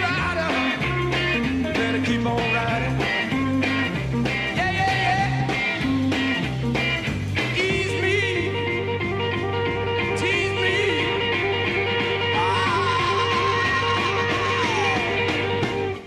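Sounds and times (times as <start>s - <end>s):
bending lead guitar lines: 0.0s - 16.0s
repeating bass riff: 0.0s - 16.0s
rock band playing live: 0.0s - 16.0s
steady drum beat: 0.0s - 16.0s.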